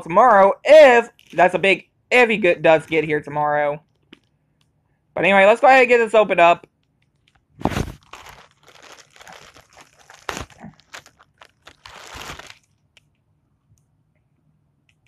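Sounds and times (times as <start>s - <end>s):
plastic bag crinkling: 6.9s - 13.1s.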